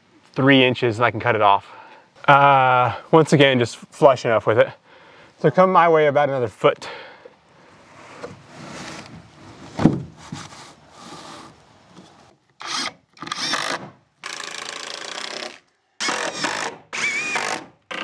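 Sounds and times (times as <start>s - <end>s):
wooden board rubbing and knocking: 8.0s - 12.3s
power drill driving screws: 12.6s - 18.0s.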